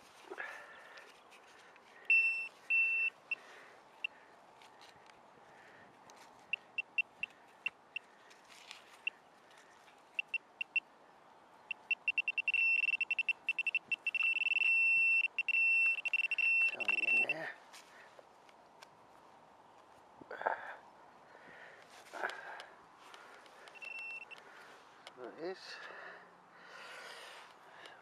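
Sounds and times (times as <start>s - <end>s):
metal detector pinpointer beeping: 2.0s - 3.4s, 6.5s - 8.1s, 10.2s - 10.8s, 11.7s - 17.4s, 23.7s - 24.4s.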